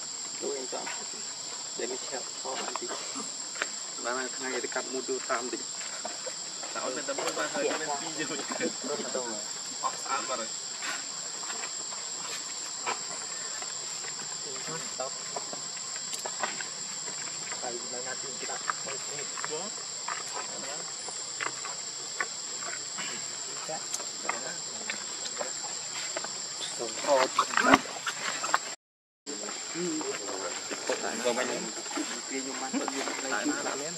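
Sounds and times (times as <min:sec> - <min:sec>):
high-pitched insect drone: 0:00.0 - 0:33.9.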